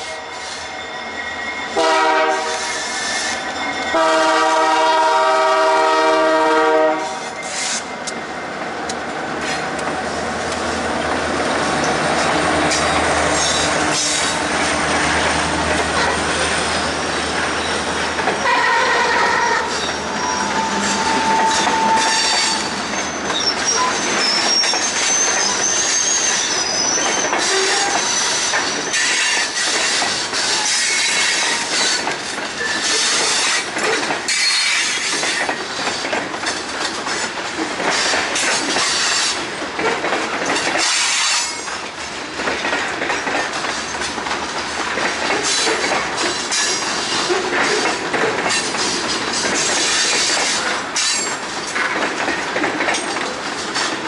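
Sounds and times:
high wavering wheel squeal: 0.0 - 4.8, 16.3 - 33.6
train wheels clacking over rail joints: 1.8 - 54.0.

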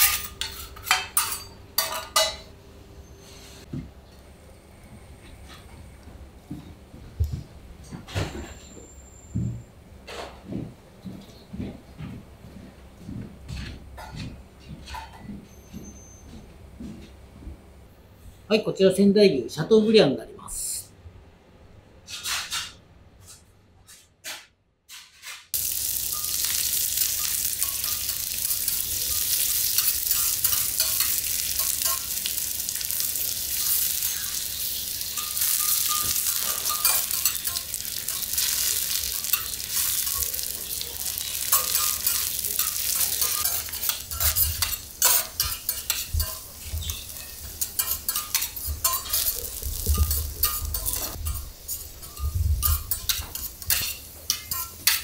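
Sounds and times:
spatulas scraping metal plate: 0.0 - 2.3
meat sizzling on a griddle: 25.6 - 55.0.

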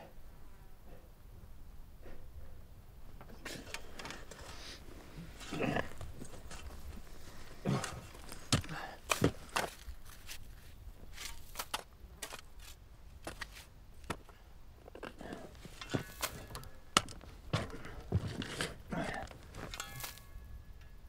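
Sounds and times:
shovel digging dry earth: 3.3 - 20.6
soil thrown: 3.4 - 14.4, 15.0 - 20.5.

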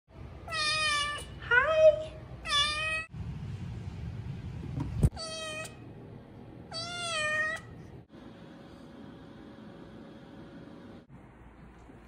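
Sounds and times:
kitten meowing: 5.1 - 5.8, 6.7 - 7.7.

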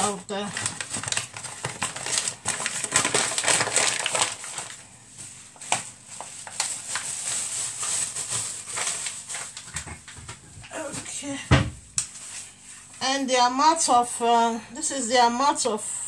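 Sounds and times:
flour packet crinkling: 0.0 - 10.2.

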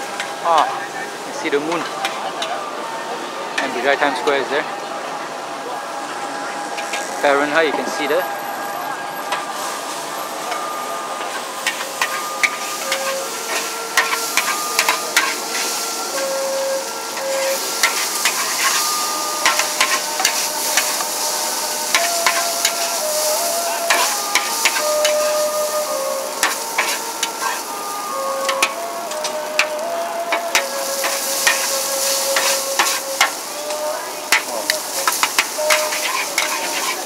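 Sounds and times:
steady sizzle: 0.0 - 4.6, 5.6 - 37.0
metal spatula clanking on wok: 17.2 - 21.0, 29.6 - 31.7, 34.3 - 37.0.

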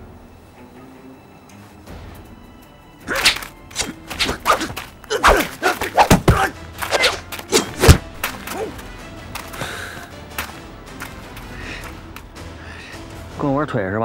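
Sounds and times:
fight hits thuds and swishes: 3.1 - 8.4.

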